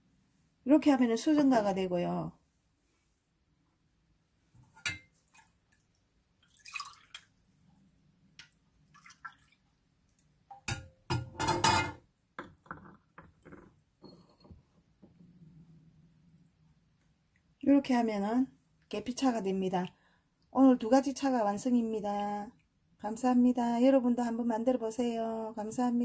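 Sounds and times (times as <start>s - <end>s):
liquid dripping: 5.1s - 7.5s, 8.4s - 10.7s
tea pouring into a cup: 6.4s - 7.3s.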